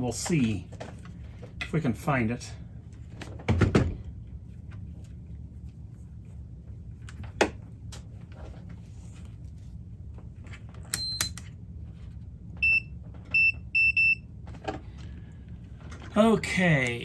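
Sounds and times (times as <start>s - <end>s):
multimeter beeping: 10.9s - 11.4s, 12.6s - 14.2s.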